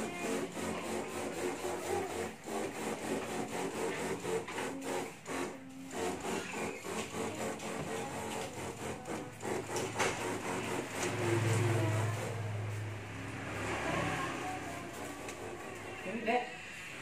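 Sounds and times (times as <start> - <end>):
sprayer pump rasping chatter: 0.0 - 17.0.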